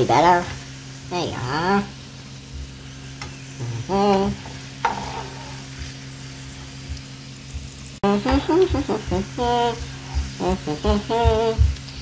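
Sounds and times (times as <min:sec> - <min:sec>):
chips deep-frying in hot oil: 0:00.0 - 0:12.0
spatula stirring with light clicks: 0:04.3 - 0:06.1.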